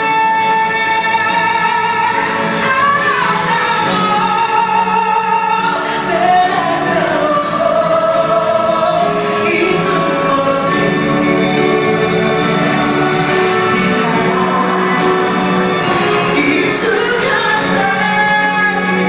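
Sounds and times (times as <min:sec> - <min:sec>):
woman singing into a microphone: 0:00.0 - 0:11.4, 0:13.2 - 0:19.0
instrumental backing: 0:00.0 - 0:19.0.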